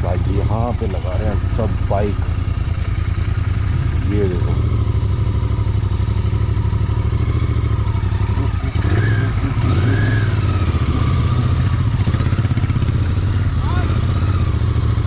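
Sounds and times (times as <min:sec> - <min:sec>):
motorcycle engine rumbling: 0:00.0 - 0:15.0.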